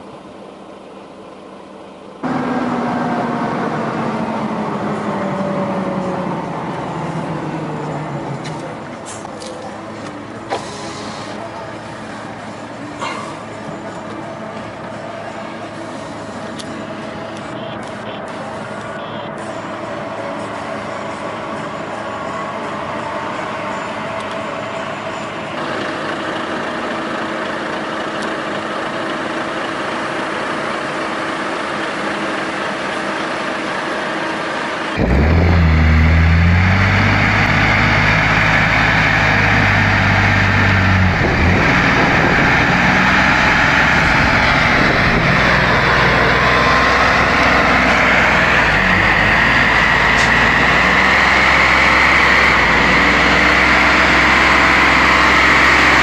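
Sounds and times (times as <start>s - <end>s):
truck diesel engine running: 0.0s - 56.0s
truck engine straining in mud: 25.6s - 56.0s.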